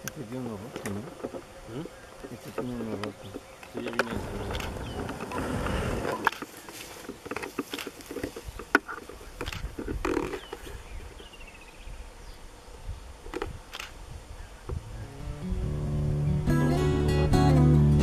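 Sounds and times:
acoustic guitar music: 14.9s - 18.0s.

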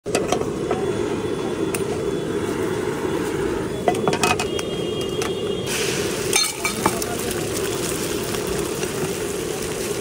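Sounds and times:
low street rumble: 0.0s - 10.0s
egg sizzling in hot pan: 5.6s - 10.0s.

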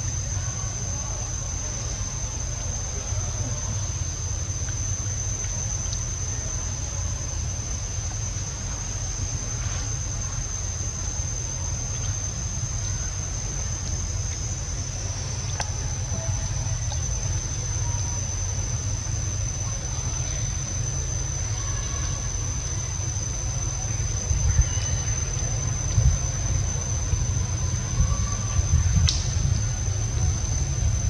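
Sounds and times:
insects droning: 0.0s - 31.0s
low rumble: 0.0s - 31.0s
faint clicks: 15.4s - 15.9s, 29.0s - 29.4s.

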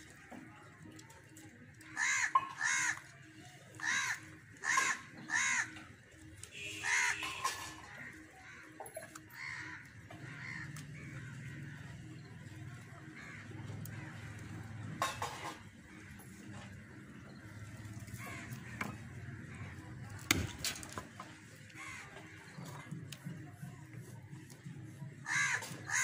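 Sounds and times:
crow cawing: 1.8s - 3.1s, 3.8s - 5.9s, 6.5s - 12.0s, 13.0s - 14.4s, 18.2s - 19.8s, 21.7s - 22.4s, 25.2s - 26.0s.

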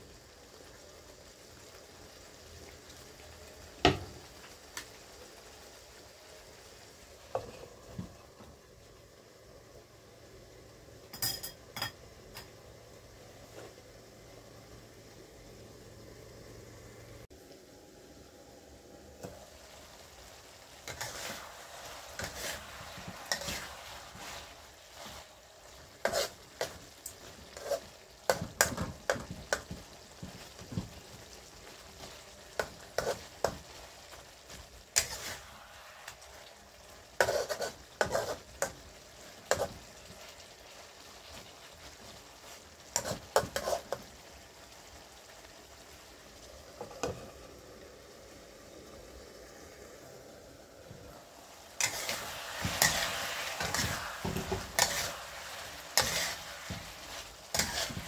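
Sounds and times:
meat sizzling in sauce: 0.0s - 58.0s
spatula scraping a steel wok: 20.8s - 29.8s, 32.6s - 33.6s, 35.0s - 36.4s, 37.1s - 38.8s, 42.5s - 44.0s, 51.8s - 58.0s.

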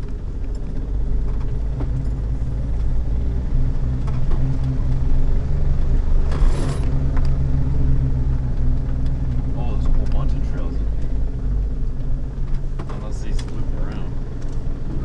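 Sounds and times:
off-road vehicle engine running: 0.0s - 15.0s.

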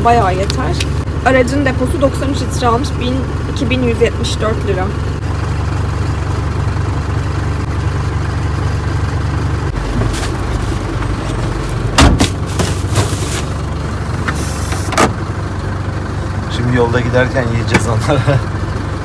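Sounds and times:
diesel engine idling: 0.0s - 19.0s
car door knocks and thump: 12.0s - 12.7s.

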